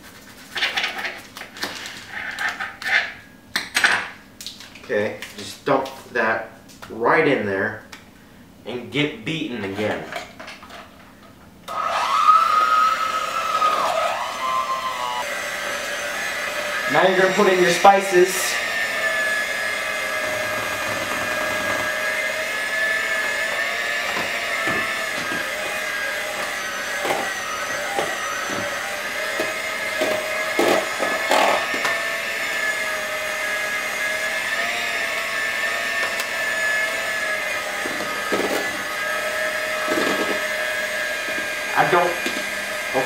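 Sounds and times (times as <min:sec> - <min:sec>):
electric mixer running: 0:11.7 - 0:43.0.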